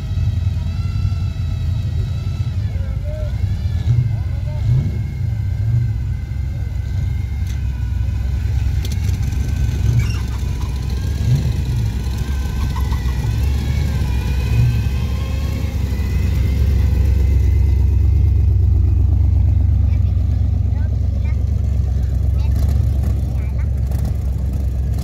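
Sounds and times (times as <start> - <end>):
car engine idling: 0.0 - 25.0.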